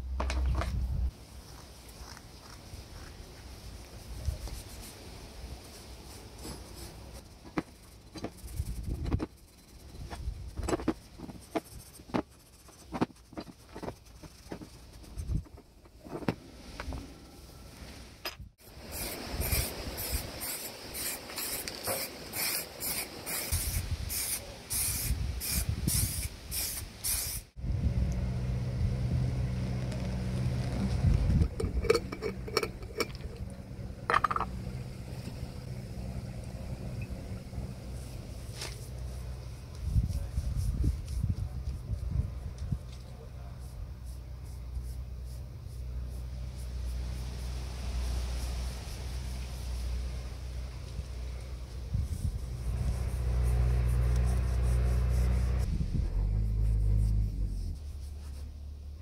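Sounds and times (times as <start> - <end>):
low steady hum: 27.6 - 59.0
steel wool scrubbing screws: 31.4 - 34.5
glass jar handled: 31.4 - 34.6.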